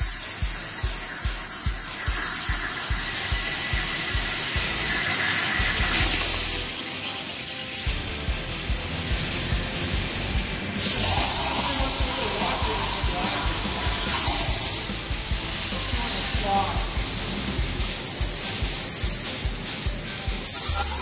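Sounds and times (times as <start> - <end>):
background music with steady beat: 0.0 - 21.0
plasma torch hissing: 0.0 - 21.0.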